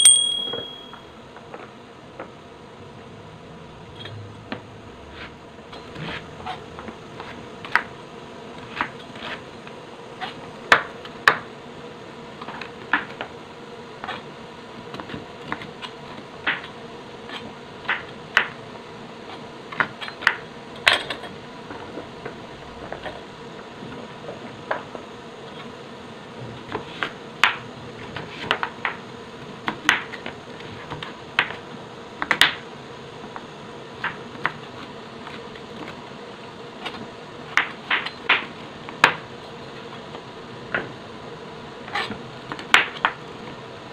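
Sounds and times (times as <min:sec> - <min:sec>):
steady hum: 0:00.0 - 0:29.8.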